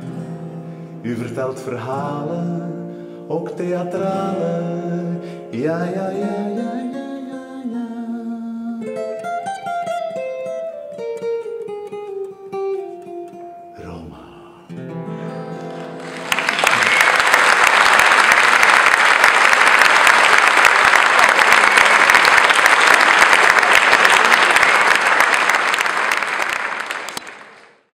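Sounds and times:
audience applauding: 15.6s - 27.9s.

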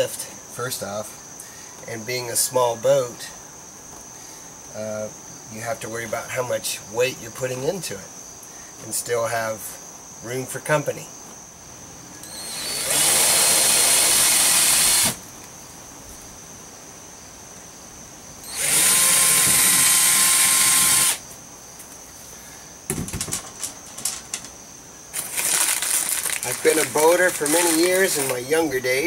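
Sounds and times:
power drill whine: 12.2s - 15.2s, 18.4s - 21.2s
light clicks and rattles: 22.9s - 24.6s.

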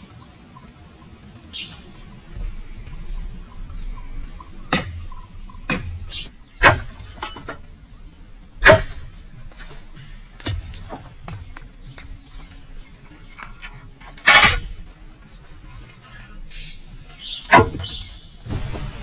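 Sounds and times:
bird chirping: 0.0s - 14.0s, 15.7s - 19.0s
sharp knocks: 4.2s - 7.7s, 8.6s - 9.8s, 17.5s - 19.0s.

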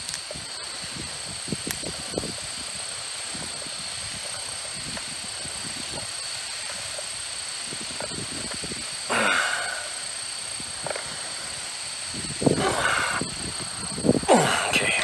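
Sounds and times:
wire connectors clicking: 0.0s - 0.3s
high-pitched drone: 0.0s - 15.0s
steady outdoor hiss: 0.0s - 15.0s.

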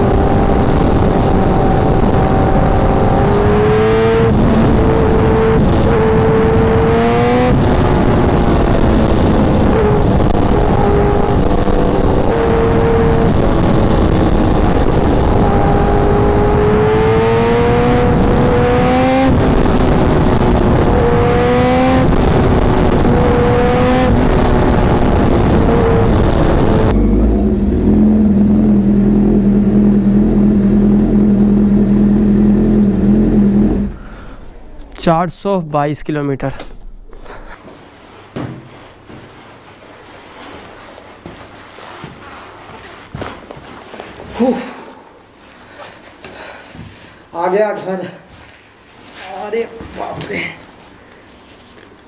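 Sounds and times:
wind rush: 0.0s - 27.0s
motorcycle engine at speed: 0.0s - 34.8s.

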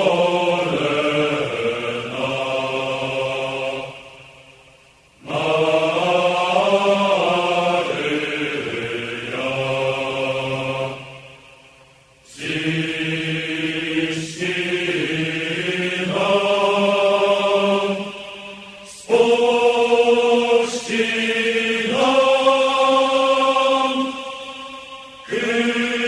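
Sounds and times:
slow chanted vocal music: 0.0s - 26.0s.

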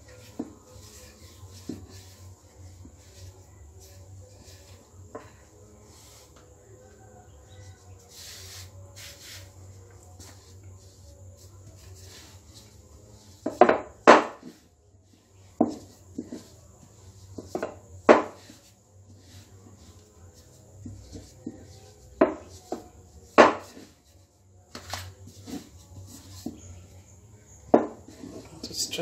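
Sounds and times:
rolling pin rolling dough: 0.0s - 29.0s
rolling pin knocking on stone: 13.4s - 14.6s, 15.6s - 16.4s, 17.4s - 18.5s, 22.2s - 23.9s, 27.7s - 28.2s.

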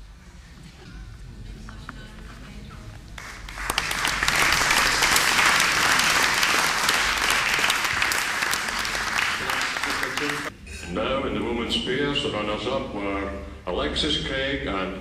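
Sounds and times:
audience applauding: 3.2s - 10.5s.

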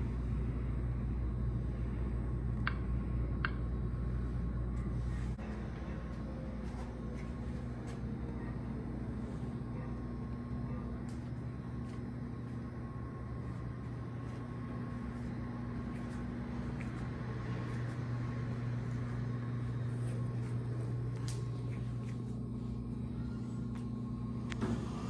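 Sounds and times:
low mechanical hum: 0.0s - 25.0s.

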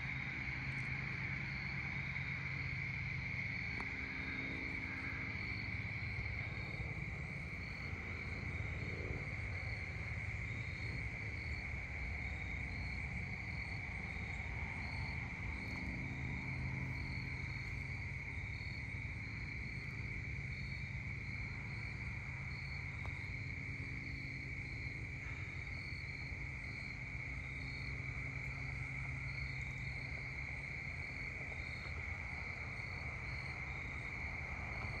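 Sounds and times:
crickets trilling: 0.0s - 35.0s
higher cricket chirps: 0.0s - 35.0s.

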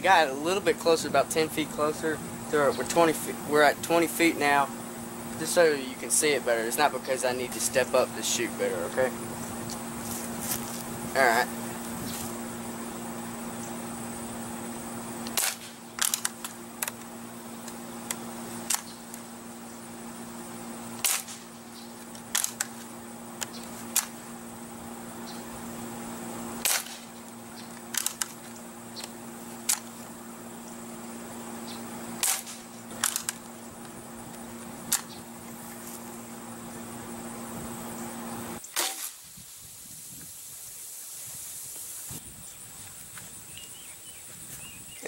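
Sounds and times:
pellet rifle firing cracks: 15.2s - 19.2s, 20.9s - 21.5s, 22.1s - 24.2s, 26.6s - 29.9s, 32.2s - 33.5s, 38.7s - 39.2s.

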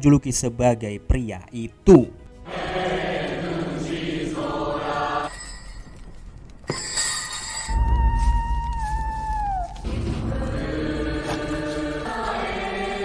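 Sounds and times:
voices chanting together: 2.4s - 5.5s, 9.6s - 13.0s
deep rumble: 7.7s - 12.0s.

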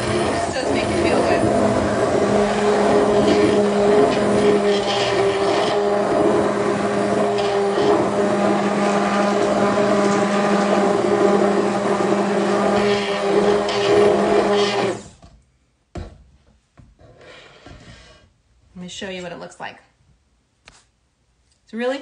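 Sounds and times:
immersion blender motor: 0.0s - 15.2s.

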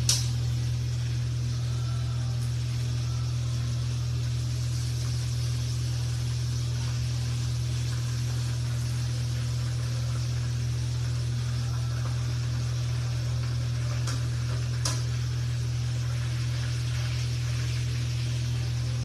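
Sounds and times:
constant low hum: 0.0s - 19.0s
fish frying in hot oil: 0.0s - 19.0s
metal tongs clicking on pan: 0.1s - 0.3s.

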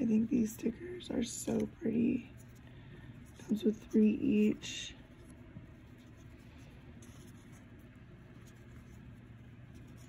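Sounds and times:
low steady hum: 0.0s - 10.0s
paper sticker sheets rustling: 3.3s - 10.0s.

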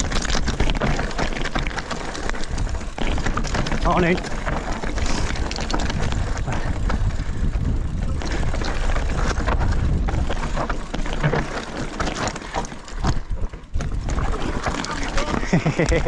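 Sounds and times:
wind buffeting microphone: 0.0s - 12.1s, 12.8s - 16.0s
bike rattling clicks: 0.0s - 16.0s
tyres crunching over loose stone: 0.0s - 16.0s.

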